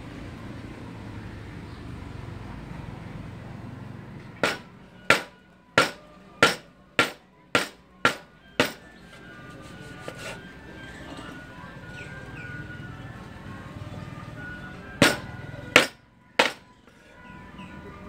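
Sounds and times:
background music: 4.2 - 18.0
knife chopping on wooden board: 4.4 - 8.8, 15.8 - 16.6.

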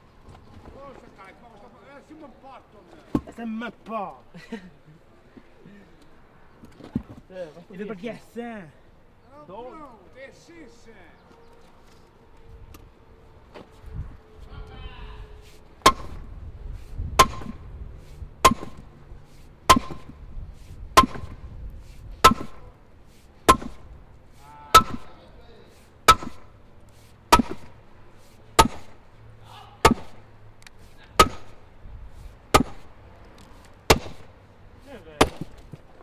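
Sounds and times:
sledgehammer striking stone: 15.8 - 16.3, 17.2 - 17.6, 18.4 - 18.9, 19.7 - 20.1, 21.0 - 21.4, 22.2 - 22.6, 23.5 - 23.9, 24.7 - 25.2, 26.1 - 26.5, 27.3 - 27.8, 28.6 - 29.0, 29.8 - 30.2, 31.2 - 31.6, 32.5 - 32.9, 33.9 - 34.3, 35.1 - 35.7.

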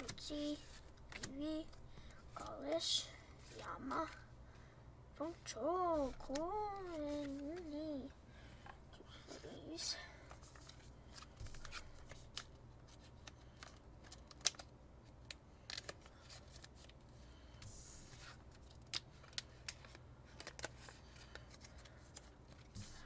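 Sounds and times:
card sliding rustle: 5.9 - 8.0.

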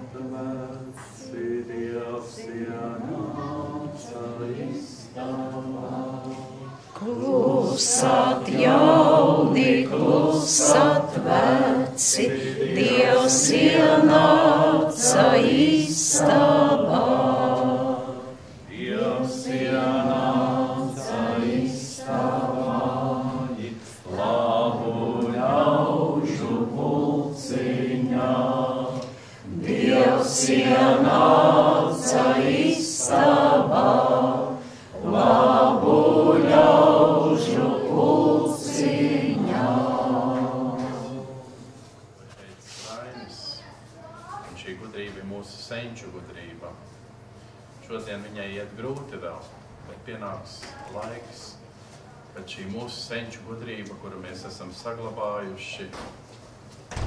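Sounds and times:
group singing unaccompanied: 0.0 - 41.9.

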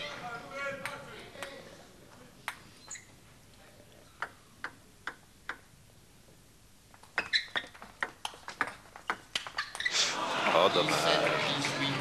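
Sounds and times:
table tennis ball tapping: 4.2 - 5.7, 7.0 - 9.9
table tennis rally clicks: 4.2 - 5.7, 7.0 - 10.0.

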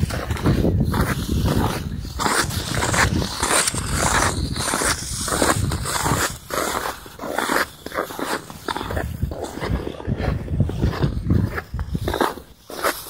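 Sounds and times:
wind buffeting microphone: 0.0 - 6.9, 8.8 - 12.3
skate blades scraping ice: 0.0 - 13.0.

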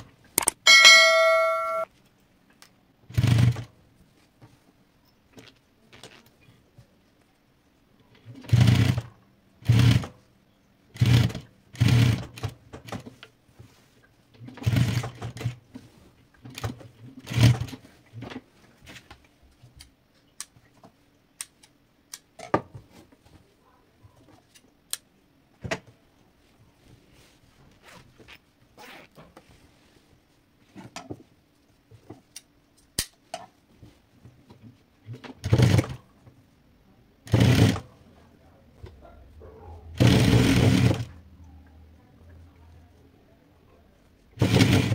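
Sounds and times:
small clicks and handling sounds: 0.4 - 0.6, 18.2 - 22.5, 32.0 - 33.6
sewing machine running: 3.1 - 3.7, 8.4 - 10.1, 11.0 - 12.5, 37.3 - 37.8, 40.0 - 41.1, 44.4 - 44.9.

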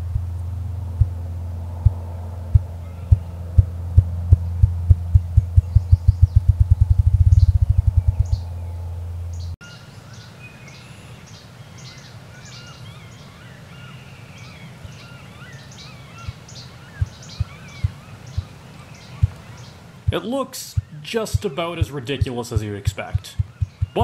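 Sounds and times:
low hum: 0.0 - 9.6
grouse wing drumming thumps: 1.8 - 8.6, 16.2 - 18.5, 19.1 - 24.0
songbirds chirping and singing: 2.6 - 24.0.

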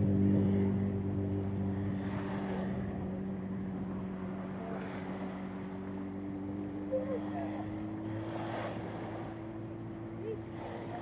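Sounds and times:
low motor hum: 0.0 - 11.0.

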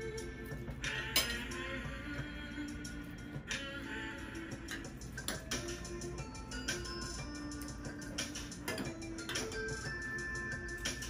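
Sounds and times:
background music with held notes: 0.0 - 11.0
music beat: 0.0 - 11.0.

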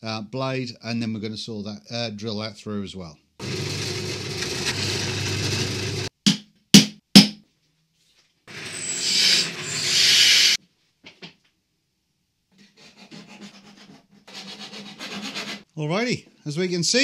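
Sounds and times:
pillar drill boring through steel: 3.4 - 6.1, 8.5 - 10.6.

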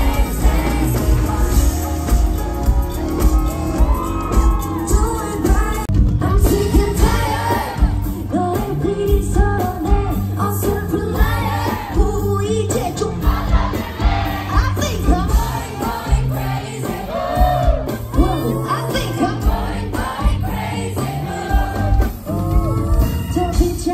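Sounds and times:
live band with steady beat: 0.0 - 23.9
woman singing: 4.6 - 16.9, 18.1 - 23.9.

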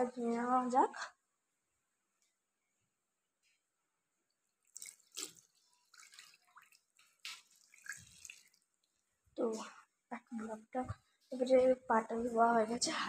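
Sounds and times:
water splashing and dripping: 4.6 - 9.1.

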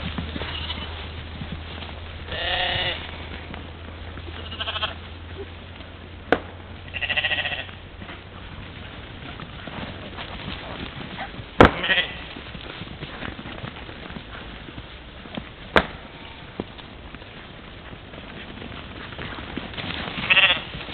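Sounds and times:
steady low hum: 0.0 - 20.9
mouflon bleating: 0.4 - 0.9, 2.3 - 3.4, 4.3 - 5.0, 6.9 - 7.8, 11.6 - 12.4, 20.2 - 20.7.

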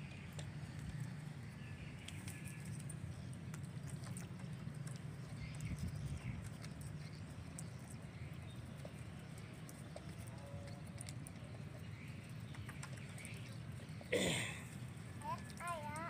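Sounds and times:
low steady rumble: 0.0 - 16.0.

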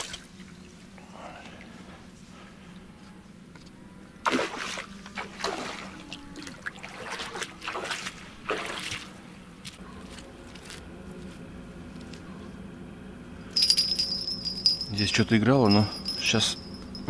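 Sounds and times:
water splashing and trickling: 0.0 - 0.8, 4.2 - 9.2.

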